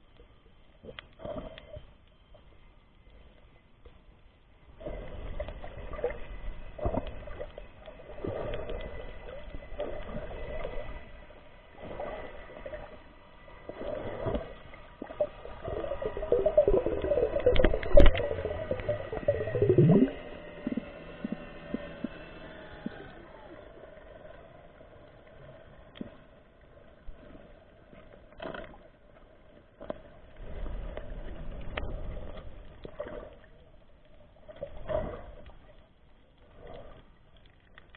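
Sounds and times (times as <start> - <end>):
underwater bubbling: 4.6 - 37.9.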